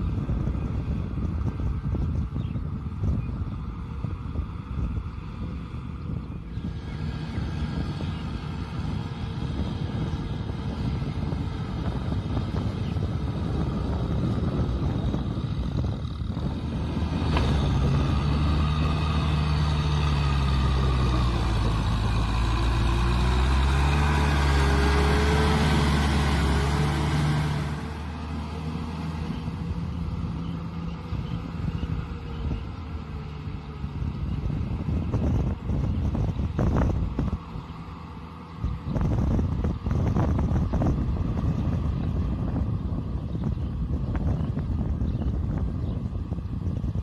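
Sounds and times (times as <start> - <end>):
tractor diesel engine under load: 0.0 - 47.0.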